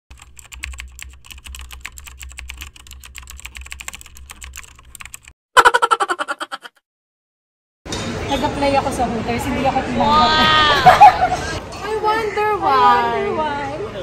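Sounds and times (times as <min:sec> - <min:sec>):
computer keyboard typing: 0:00.1 - 0:05.3.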